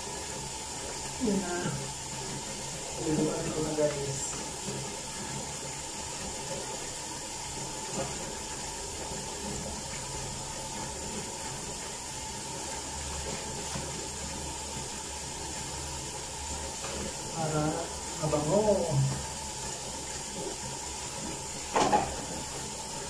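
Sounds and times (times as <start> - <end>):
water running from a tap: 0.0 - 23.0.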